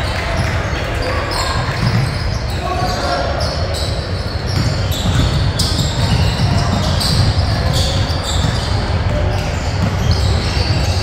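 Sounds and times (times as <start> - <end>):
sneakers squeaking on court: 0.0 - 11.0
basketball bouncing: 1.6 - 2.4, 4.4 - 11.0.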